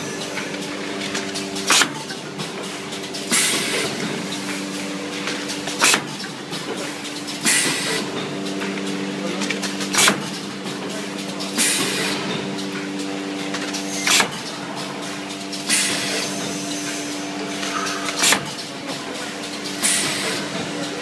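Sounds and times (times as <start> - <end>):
machine clacking: 0.0 - 21.0
packaging machine humming: 0.0 - 21.0
pneumatic hiss: 3.3 - 4.0, 7.4 - 8.1, 13.9 - 14.4, 15.0 - 18.6, 19.6 - 20.4.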